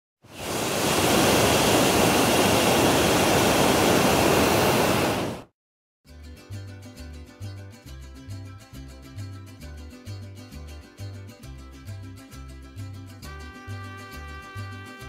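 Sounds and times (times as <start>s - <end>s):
propane burner rushing blast: 0.3s - 5.5s.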